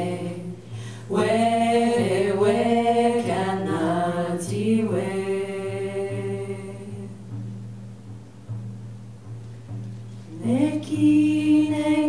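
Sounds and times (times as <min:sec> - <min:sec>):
women singing lullaby together: 0:00.0 - 0:07.4, 0:10.3 - 0:12.0.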